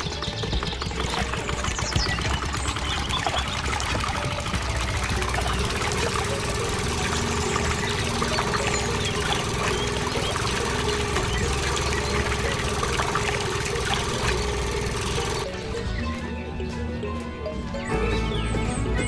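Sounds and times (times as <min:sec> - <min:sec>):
water trickling and splashing: 0:00.0 - 0:15.8.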